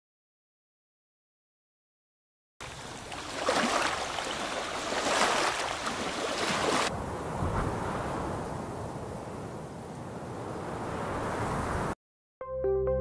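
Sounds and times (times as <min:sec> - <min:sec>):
sea waves washing onto shore: 0:02.6 - 0:09.8.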